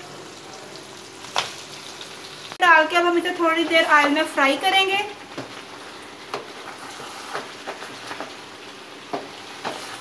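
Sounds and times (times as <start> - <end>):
meat sizzling in hot oil: 0.0 - 10.0
wooden spatula scraping a pan: 5.4 - 8.4, 9.1 - 10.0.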